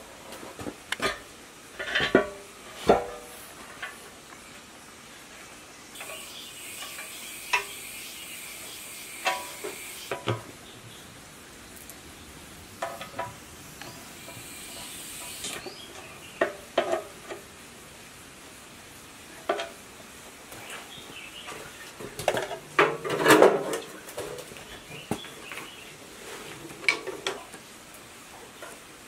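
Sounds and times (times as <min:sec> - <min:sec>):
sharp metal clanks and knocks: 0:09.2 - 0:10.5, 0:12.8 - 0:13.4.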